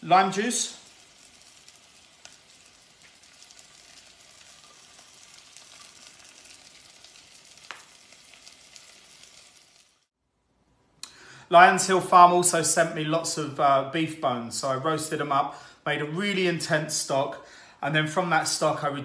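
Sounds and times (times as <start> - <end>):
faint sizzling in a pot: 0.0 - 10.2.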